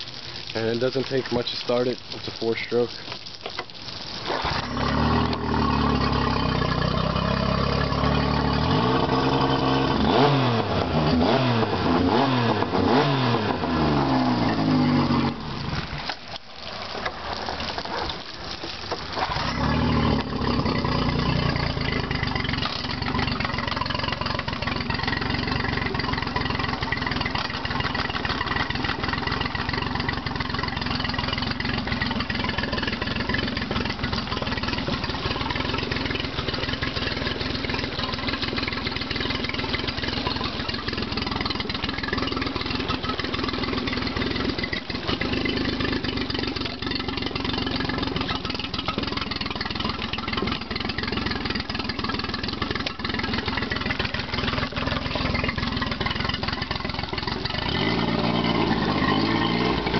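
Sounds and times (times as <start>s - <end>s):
outboard motor revving: 4.1s - 59.9s.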